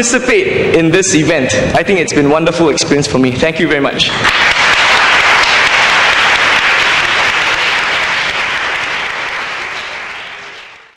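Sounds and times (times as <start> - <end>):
audience applauding: 4.2 - 10.9.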